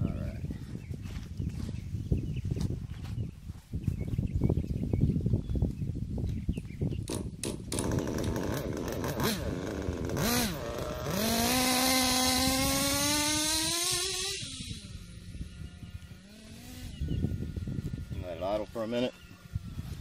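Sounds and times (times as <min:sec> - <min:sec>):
model car engine revving: 0:07.7 - 0:19.3.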